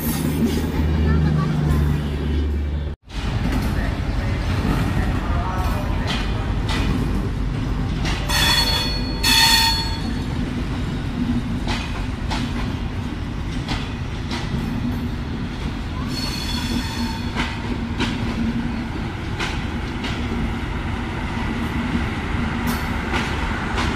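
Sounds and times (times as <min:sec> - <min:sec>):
train wheels rumbling on rails: 0:00.0 - 0:23.9
rail joint clicks: 0:02.5 - 0:23.9.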